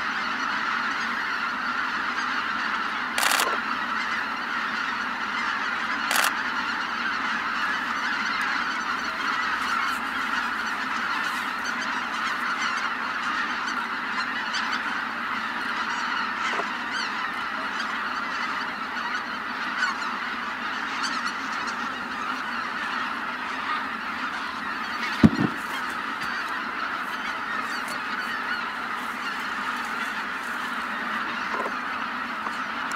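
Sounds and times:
geese honking and yelping: 0.0s - 32.9s
short low thump: 25.2s - 25.6s.

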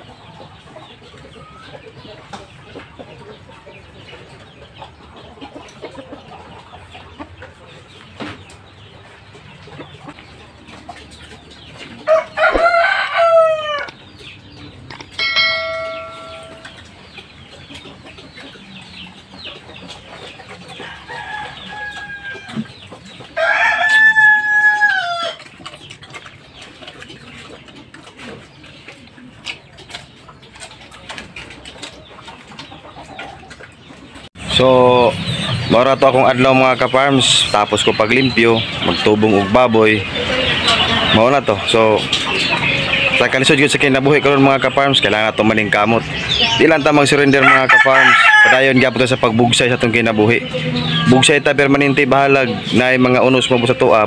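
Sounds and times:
rooster crowing: 12.1s - 13.9s, 23.4s - 25.4s, 47.4s - 48.7s
short steady ringing tone: 15.2s - 16.8s.

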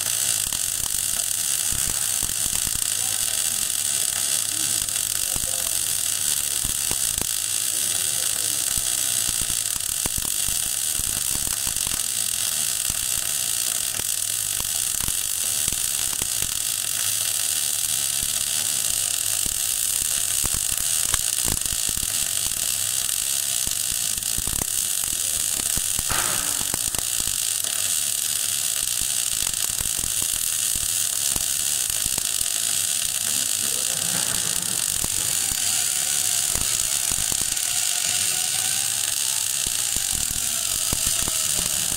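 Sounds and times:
welding arc crackling hiss: 0.0s - 41.9s.

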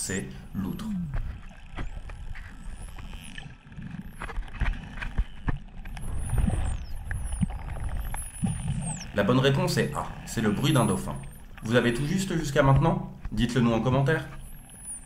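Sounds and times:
dolphin whistles: 8.0s - 9.2s, 14.4s - 15.0s.

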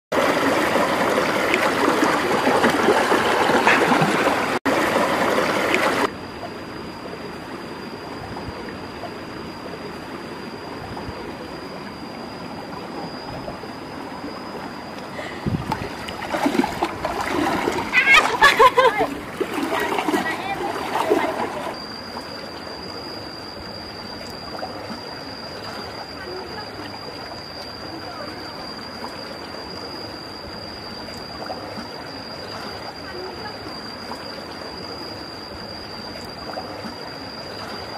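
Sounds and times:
stream water running over rocks: 0.2s - 6.1s, 15.0s - 22.9s
person wading splashes: 0.3s - 6.1s, 15.1s - 21.8s.

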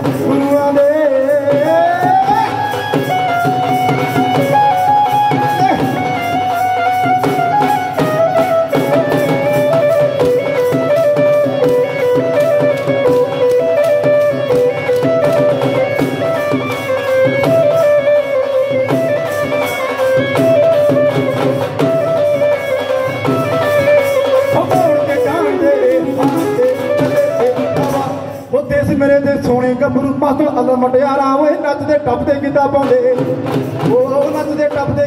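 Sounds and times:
fast drum beat: 0.0s - 30.0s
instrumental folk melody: 2.6s - 28.5s.

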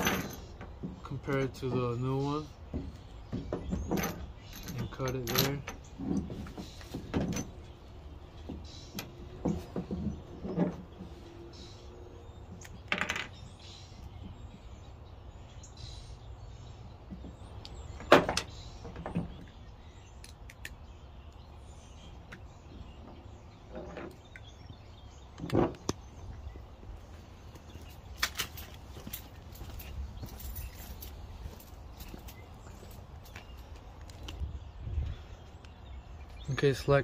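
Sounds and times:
low outdoor background: 0.0s - 37.0s
tools knocking on plastic: 2.7s - 4.2s
footsteps on pavement: 26.2s - 35.7s.

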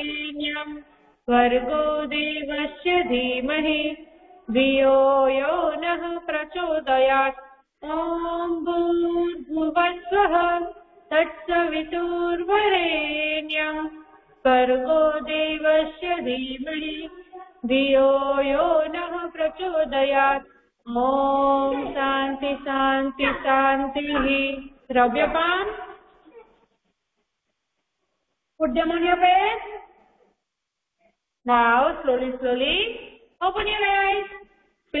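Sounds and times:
woman singing: 0.0s - 25.8s.

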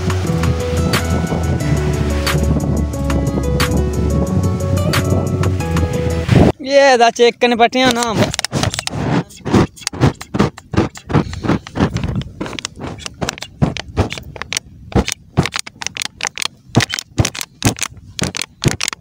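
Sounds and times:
burning plastic dripping and crackling: 11.0s - 19.0s.

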